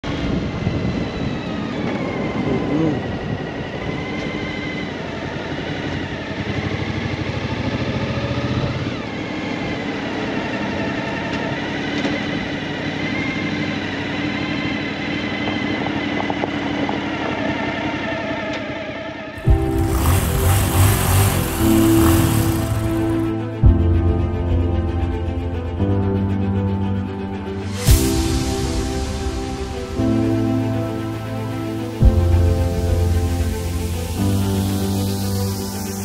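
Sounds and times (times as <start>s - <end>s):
motorcycle engine running: 19.4s - 23.8s.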